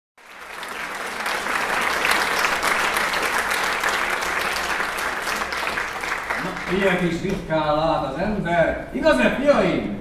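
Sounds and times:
audience applauding: 0.2s - 7.4s.

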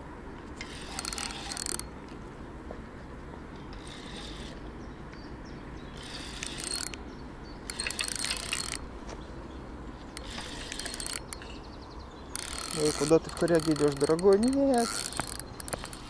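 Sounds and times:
fishing reel clicking: 0.6s - 1.9s, 6.0s - 7.0s, 7.7s - 8.8s, 10.2s - 11.4s, 12.3s - 16.0s.

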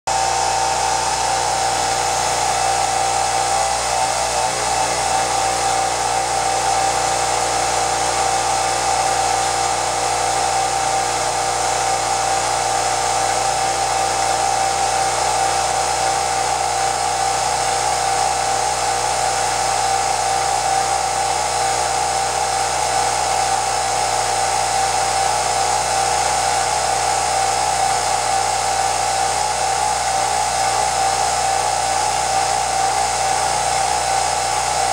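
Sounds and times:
high-pitched whine: 0.1s - 9.9s
film projector motor whirring: 0.1s - 34.9s.

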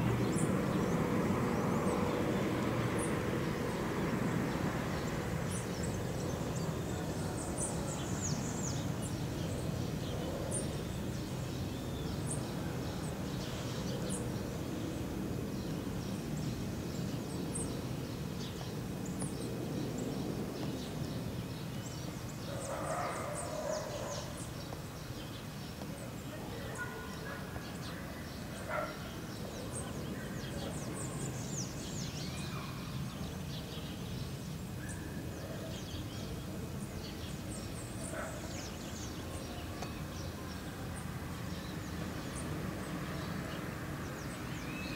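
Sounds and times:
distant jet airliner rumble: 0.0s - 11.5s
small birds chirping: 0.0s - 44.9s.

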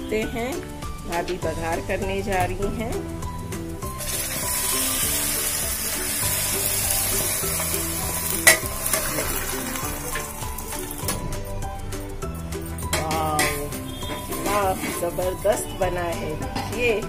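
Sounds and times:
hot oil sizzling: 3.3s - 16.6s.

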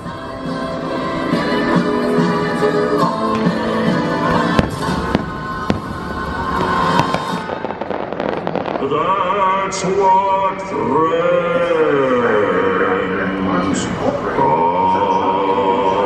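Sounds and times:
sung melody: 0.0s - 13.6s
music soundtrack: 0.0s - 16.0s
fireworks crackling: 3.0s - 10.5s
fireworks bangs: 3.3s - 10.5s.

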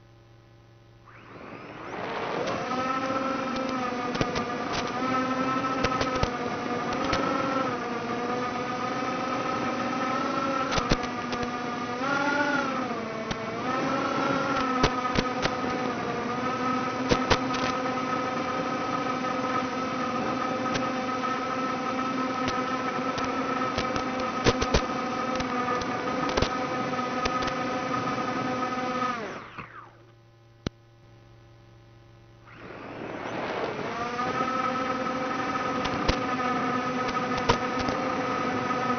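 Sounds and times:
faint low hum: 0.0s - 6.8s, 28.6s - 35.7s
quadcopter motors whining: 0.9s - 30.2s, 32.3s - 38.9s
sharp clicks: 2.0s - 5.0s, 5.8s - 7.3s, 10.6s - 11.6s, 14.5s - 15.8s, 17.0s - 17.8s, 22.4s - 26.6s, 27.2s - 27.6s, 35.7s - 36.3s, 37.0s - 38.0s.

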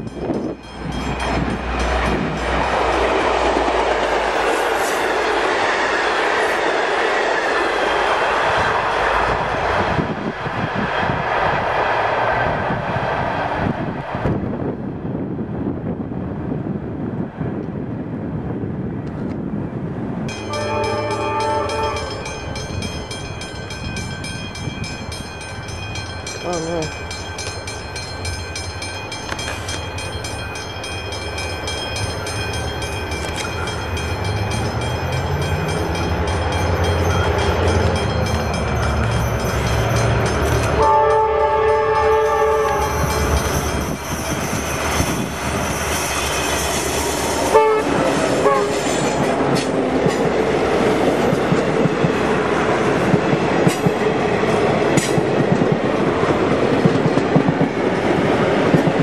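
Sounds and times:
train wheels clattering on rails: 0.0s - 13.8s, 20.3s - 59.0s
diesel locomotive engine rumble: 0.0s - 59.0s
locomotive horn: 20.4s - 22.3s, 40.7s - 43.3s, 47.5s - 49.0s.

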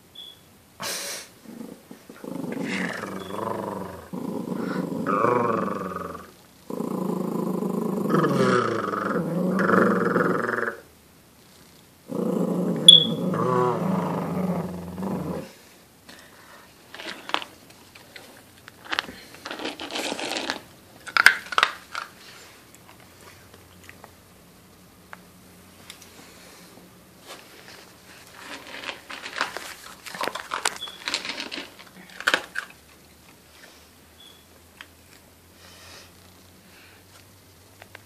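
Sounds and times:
puppy growling: 1.4s - 10.9s, 11.6s - 15.6s
small clicks and rustles: 27.3s - 33.4s.

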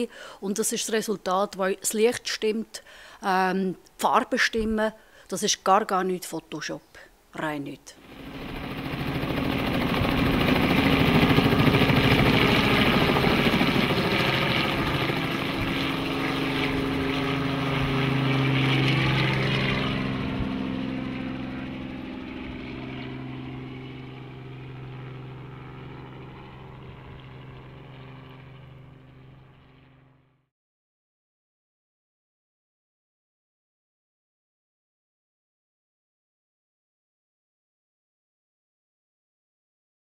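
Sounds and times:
helicopter engine hum: 8.0s - 30.4s.

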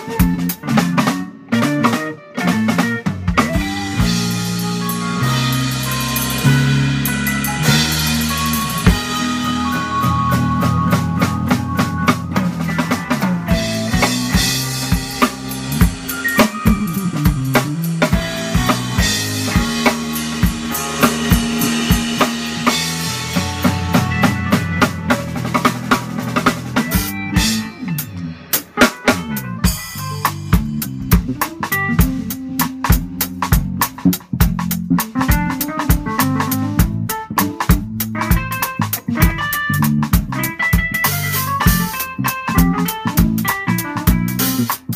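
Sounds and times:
bass guitar: 0.0s - 44.9s
digital piano: 0.0s - 44.9s
drum kit in band groove: 0.0s - 44.9s.

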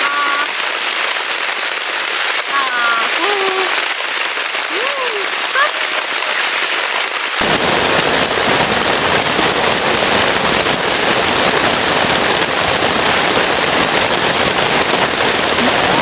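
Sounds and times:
heavy rain drumming on a tent: 0.0s - 16.0s.

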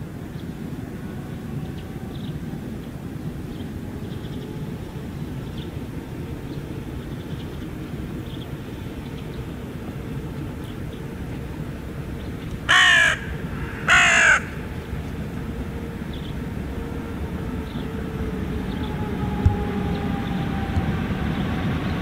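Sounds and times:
freight train rumbling: 0.0s - 22.0s
crow cawing: 12.7s - 14.7s.

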